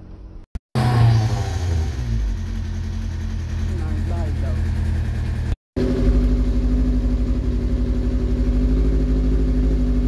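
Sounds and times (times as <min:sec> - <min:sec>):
motorcycle engine idling: 0:02.2 - 0:10.0.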